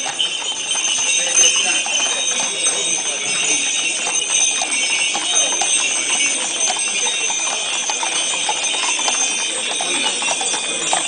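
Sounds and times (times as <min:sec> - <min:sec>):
hooves clip-clopping on pavement: 0:00.0 - 0:11.0
small bells jingling: 0:00.0 - 0:11.0.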